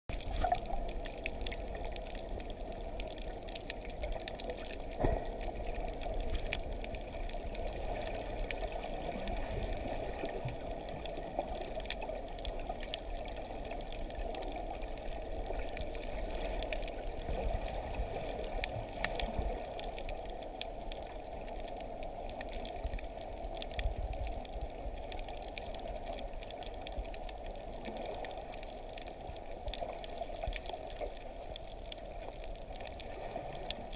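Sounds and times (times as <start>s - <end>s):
sharp underwater clicks and crackles: 0.1s - 33.9s
underwater water rush: 0.1s - 33.9s.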